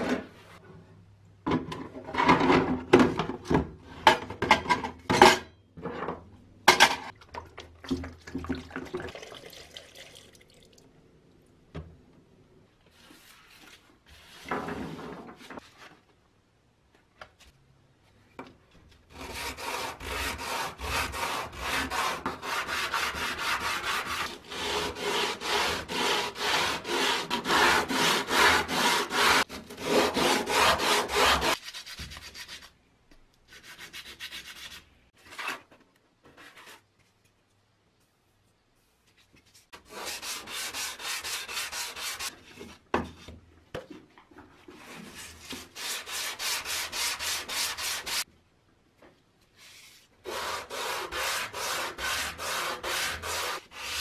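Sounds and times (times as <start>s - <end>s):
wood sanding by hand: 19.2s - 31.6s, 39.9s - 42.3s, 50.3s - 54.0s.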